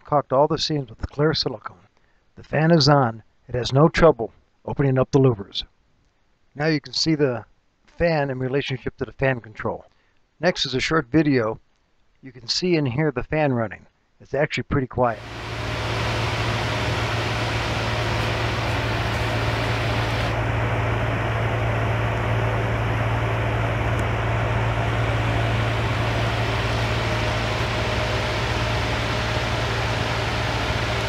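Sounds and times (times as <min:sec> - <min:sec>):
exhaust fan running: 0:15.2 - 0:31.0.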